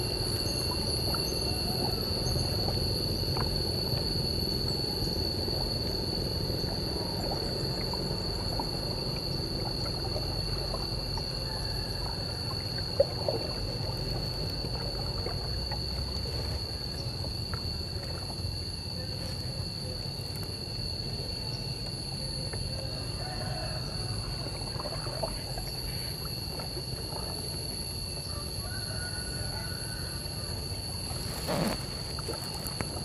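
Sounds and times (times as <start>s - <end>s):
low steady rumble: 0.0s - 26.3s
water gurgling around kayak: 0.0s - 33.0s.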